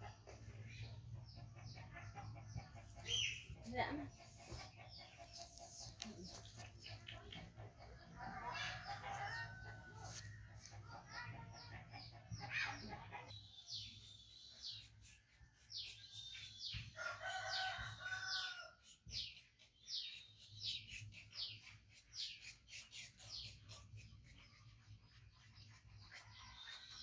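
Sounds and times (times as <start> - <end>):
rooster crowing: 17.0 - 18.8.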